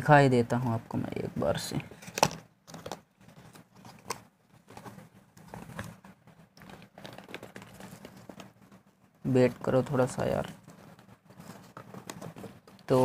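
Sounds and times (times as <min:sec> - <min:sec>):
cardboard box rustling: 0:02.0 - 0:08.9, 0:10.5 - 0:13.0.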